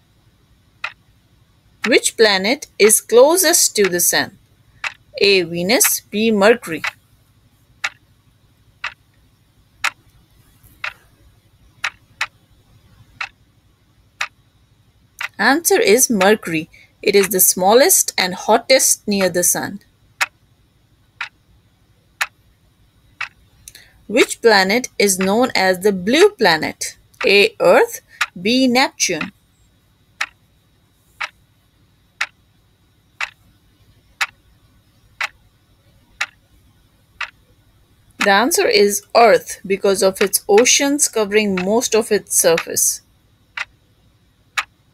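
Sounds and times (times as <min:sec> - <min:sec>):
clock ticking: 0:00.8 - 0:01.0, 0:01.8 - 0:07.0, 0:07.8 - 0:08.0, 0:08.8 - 0:09.1, 0:09.8 - 0:10.0, 0:10.7 - 0:11.0, 0:11.8 - 0:13.4, 0:15.2 - 0:16.5, 0:17.1 - 0:19.6, 0:23.2 - 0:29.4, 0:30.2 - 0:30.4, 0:32.2 - 0:32.4, 0:33.2 - 0:33.4, 0:34.2 - 0:34.4, 0:35.2 - 0:35.4, 0:36.2 - 0:36.4, 0:37.2 - 0:37.4, 0:38.2 - 0:43.7, 0:44.5 - 0:44.8.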